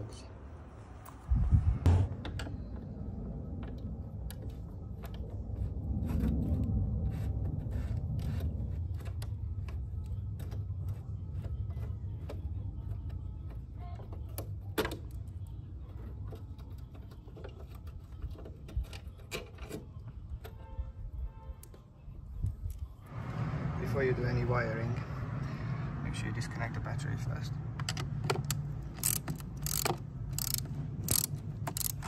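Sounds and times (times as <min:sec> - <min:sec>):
low steady rumble: 0:00.1 - 0:16.7
hand tool clicking on bolt: 0:27.8 - 0:32.0.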